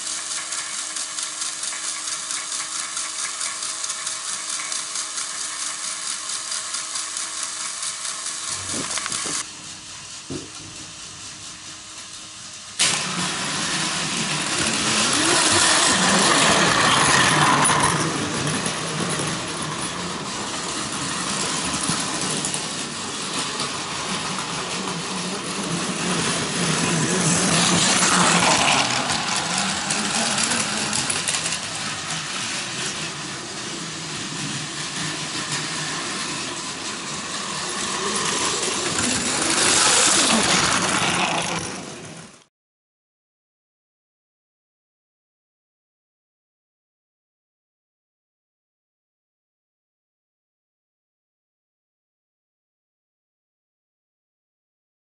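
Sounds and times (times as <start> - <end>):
wheels rattling over track: 0.0 - 42.4
toy train motor whir: 0.0 - 42.5.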